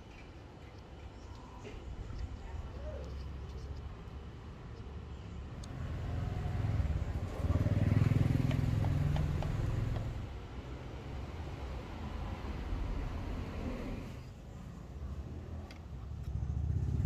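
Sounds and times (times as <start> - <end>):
motor vehicle passing: 5.7 - 14.3, 15.2 - 17.0.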